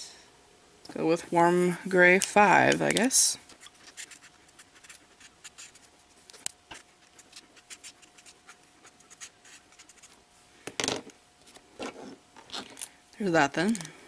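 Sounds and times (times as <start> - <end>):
marker scratching on paper: 3.6 - 5.9, 6.7 - 10.2.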